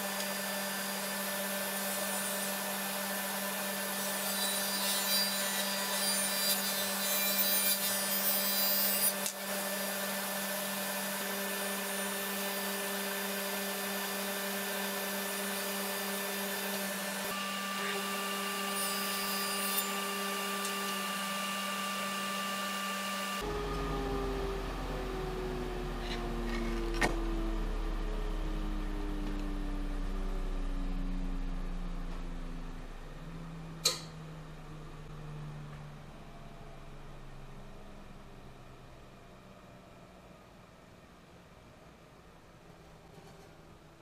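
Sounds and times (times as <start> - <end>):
saw blade cutting wood: 0.0 - 23.4
table saw motor hum: 0.0 - 34.2.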